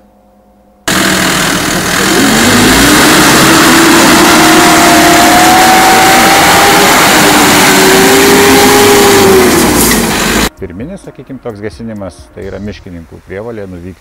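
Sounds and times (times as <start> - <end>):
diesel truck engine pulling away: 0.9 - 10.5
road noise: 0.9 - 14.0.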